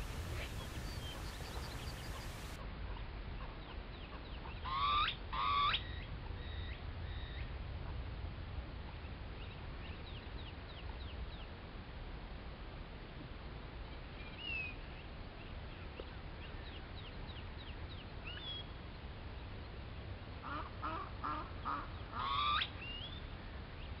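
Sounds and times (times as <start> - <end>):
background hiss: 0.0 - 2.6
harsh bird calls: 0.0 - 2.6
rising bird call: 0.0 - 2.6.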